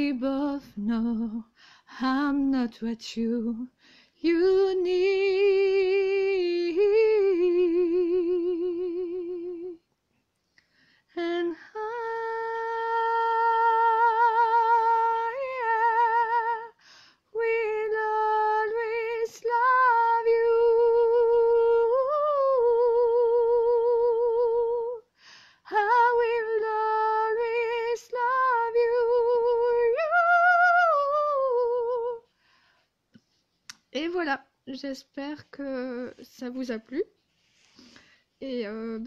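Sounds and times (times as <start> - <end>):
woman singing unaccompanied: 0.0 - 9.9, 11.1 - 32.3, 33.9 - 37.1, 38.4 - 39.0
singer breathing: 3.8 - 4.2, 10.6 - 11.1, 25.1 - 25.7, 32.3 - 33.0, 37.4 - 38.4.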